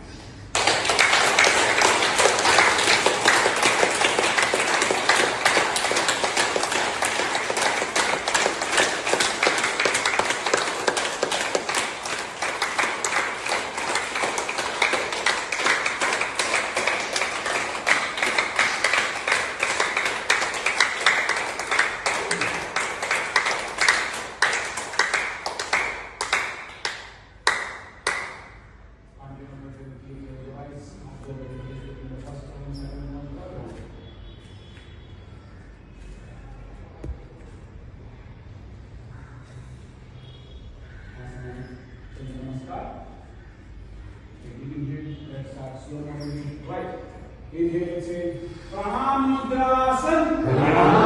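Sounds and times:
group clapping in a hall: 0:00.3 - 0:29.2, 0:47.1 - 0:51.0.

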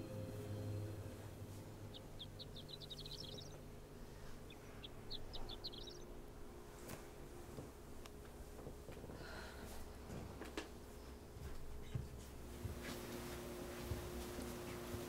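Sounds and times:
bird chirping: 0:00.4 - 0:06.4.

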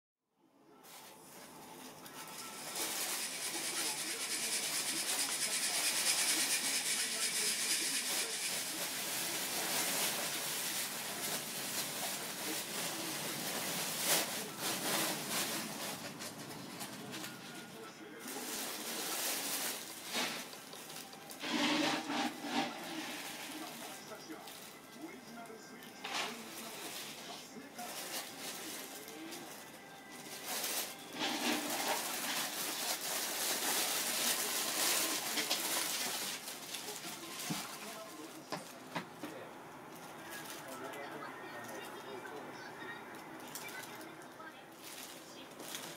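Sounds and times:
plastic bag crinkling: 0:07.4 - 0:25.0, 0:26.1 - 0:38.8, 0:43.1 - 0:45.9.

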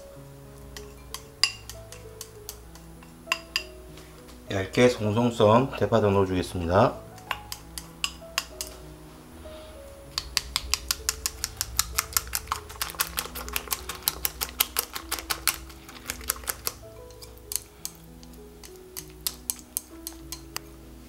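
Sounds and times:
background music: 0:00.0 - 0:21.0
chopsticks beating eggs in glass bowl: 0:00.7 - 0:03.8, 0:07.1 - 0:08.8, 0:10.1 - 0:20.7.

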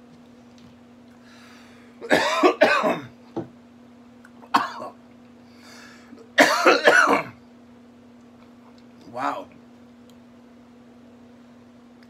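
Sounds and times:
man coughing: 0:02.0 - 0:03.2, 0:04.5 - 0:05.0, 0:06.4 - 0:07.4.

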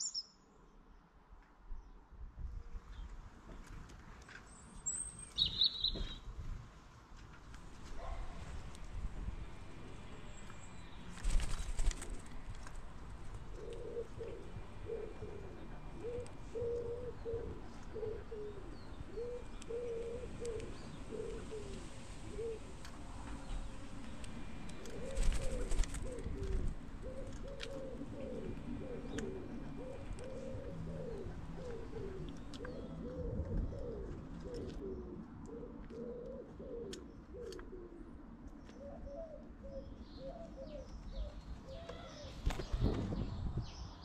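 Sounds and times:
pigeons cooing: 0:13.4 - 0:22.8, 0:24.5 - 0:43.3.

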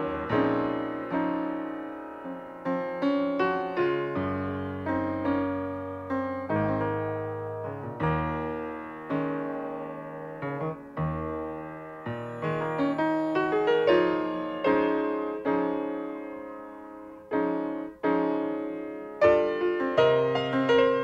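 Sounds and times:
keyboard music: 0:11.1 - 0:16.0.

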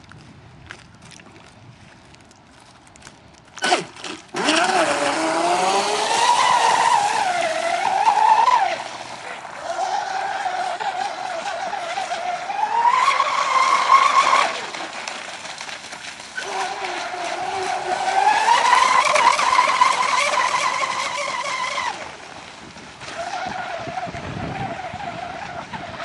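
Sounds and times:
model boat motor whining: 0:03.6 - 0:15.5, 0:16.4 - 0:26.0.

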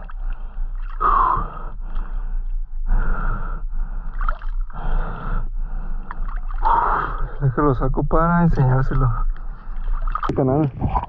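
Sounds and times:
man breathing heavily: 0:00.2 - 0:07.4.

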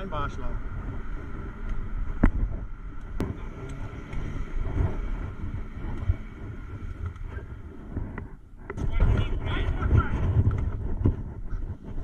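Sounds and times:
engine and road rumble: 0:00.0 - 0:12.0.

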